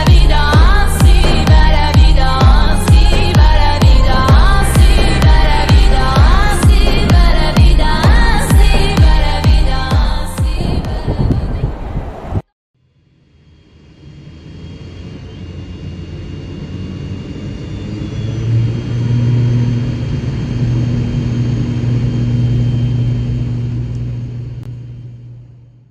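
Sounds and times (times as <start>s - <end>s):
steady low hum: 0.0s - 11.0s, 12.8s - 25.9s
jet engines rumbling: 0.0s - 12.5s, 13.2s - 25.9s
faint high whine: 12.8s - 25.9s.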